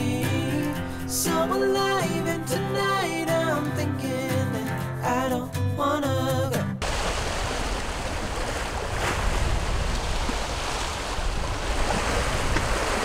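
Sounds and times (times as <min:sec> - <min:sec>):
sea waves washing: 0:06.8 - 0:13.0
wind rumbling on microphone: 0:06.8 - 0:13.0.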